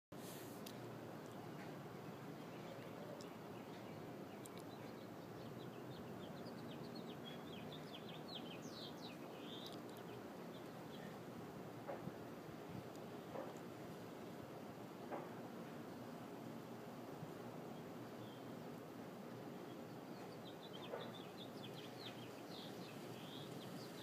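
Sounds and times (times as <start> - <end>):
faint background hiss: 0.2 - 24.0
small bird chirping: 2.6 - 11.2, 20.0 - 24.0.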